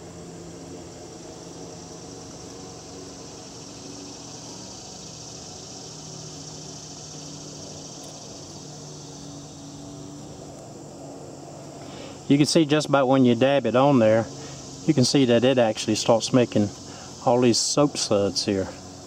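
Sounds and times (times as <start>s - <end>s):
high-pitched insect chorus: 0.0s - 19.0s.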